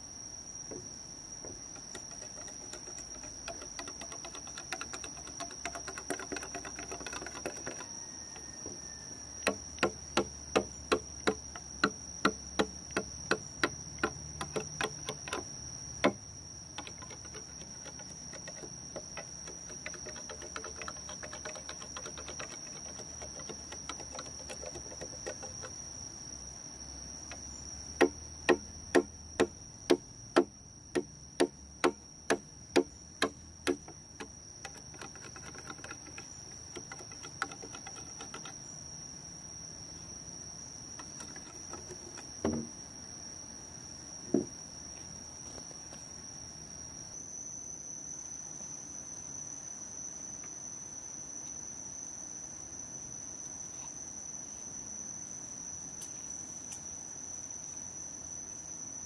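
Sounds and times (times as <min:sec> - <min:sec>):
insect drone: 0:00.0 - 0:59.0
sharp knocks: 0:09.4 - 0:16.2, 0:28.0 - 0:36.2, 0:41.0 - 0:42.8.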